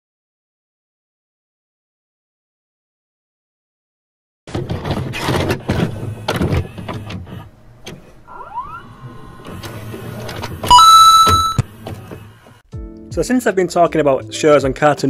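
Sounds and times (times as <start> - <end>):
tape mechanism clunks and clicks: 4.5 - 8.2, 9.4 - 12.6
motor whir: 5.1 - 12.6
short rising whine: 8.3 - 11.8
steady electronic beep: 10.7 - 11.7.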